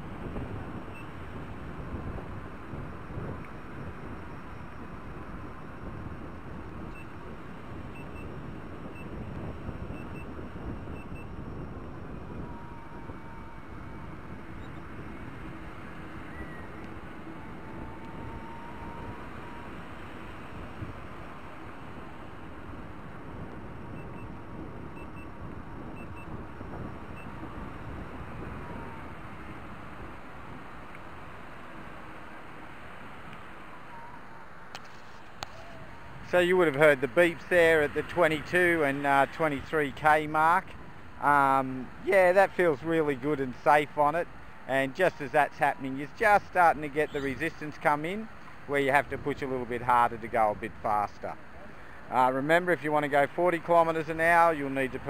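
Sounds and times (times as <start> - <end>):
wind rushing over microphone: 0.0 - 55.0
high warning beeps: 7.9 - 15.3, 25.0 - 27.4.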